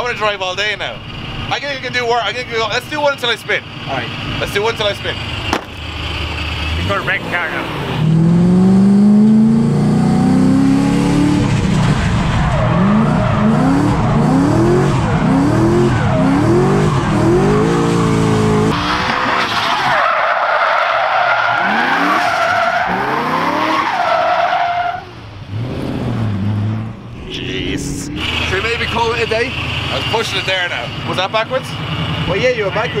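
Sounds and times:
car engine revving hard: 6.0s - 19.5s, 21.5s - 24.2s, 25.5s - 30.8s
tyres squealing: 19.0s - 25.2s.

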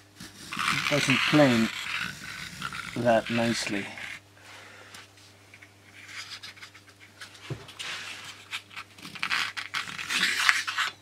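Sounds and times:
plane rasping on wood: 0.4s - 4.2s.

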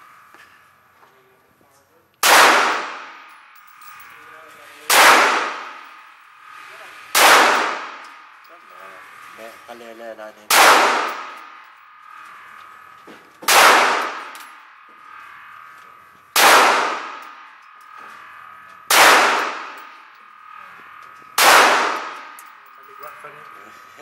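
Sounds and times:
pistol shots echoing indoors: 2.2s - 3.2s, 4.9s - 6.0s, 7.2s - 8.1s, 10.5s - 11.6s, 13.4s - 14.5s, 16.3s - 17.5s, 18.9s - 19.8s, 21.4s - 22.4s.

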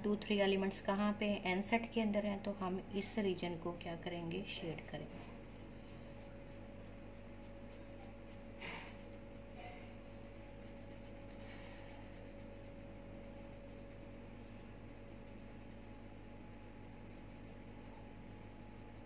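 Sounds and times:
faint steady hum: 0.0s - 19.0s
felt-tip marker scratching on paper: 4.1s - 16.3s, 17.0s - 19.0s.

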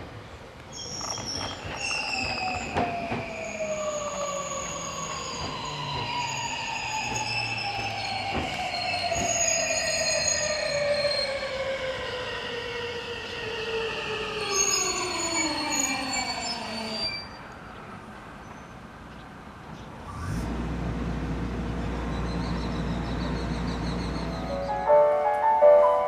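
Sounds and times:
brake squeals: 0.7s - 11.6s.

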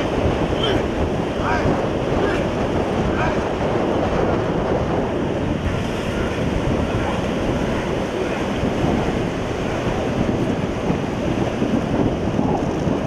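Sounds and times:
surf washing on beach: 0.0s - 13.0s
wind buffeting microphone: 0.0s - 13.0s.

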